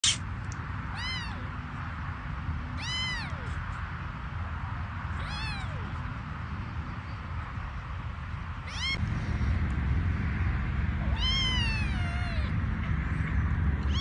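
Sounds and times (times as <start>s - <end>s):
steady low rumble: 0.1s - 14.0s
kitten meowing: 0.9s - 1.5s, 2.8s - 3.6s, 5.2s - 6.0s, 8.7s - 9.0s, 11.0s - 12.5s.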